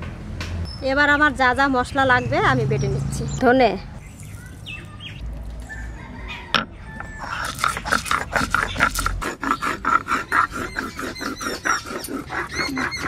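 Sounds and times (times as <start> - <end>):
stone crunching seeds: 7.2 - 9.3.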